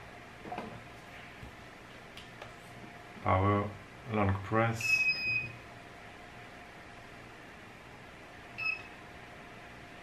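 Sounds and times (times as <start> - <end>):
welder buzzer beeping: 4.8 - 5.6, 8.6 - 9.0.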